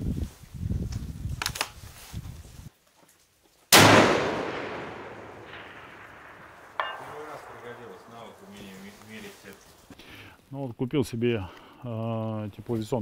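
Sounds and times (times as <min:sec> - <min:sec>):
rifle shot with echo: 0:03.7 - 0:08.7.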